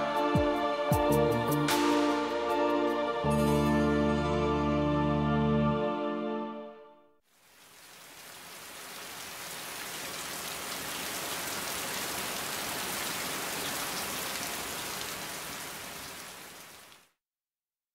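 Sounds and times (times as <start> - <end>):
steady rain: 7.3 - 17.2.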